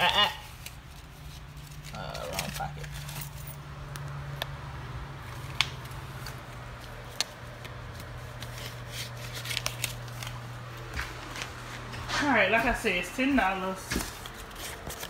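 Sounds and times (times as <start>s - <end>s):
rummaging through pockets: 0.5s - 3.6s.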